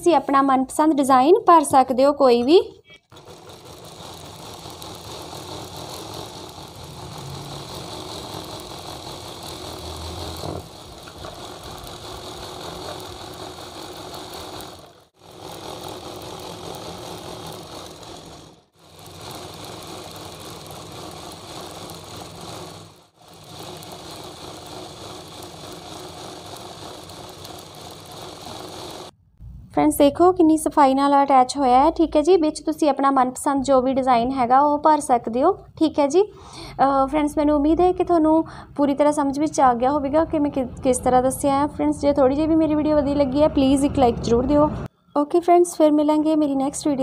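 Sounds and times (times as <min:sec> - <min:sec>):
sewing machine running: 0:03.0 - 0:29.2.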